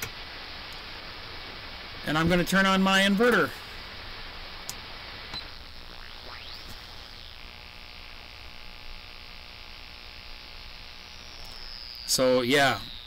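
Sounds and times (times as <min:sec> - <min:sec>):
radio static hiss: 0:00.0 - 0:13.0
steady interference buzz: 0:00.0 - 0:13.0
gliding radio whistles: 0:04.5 - 0:08.5.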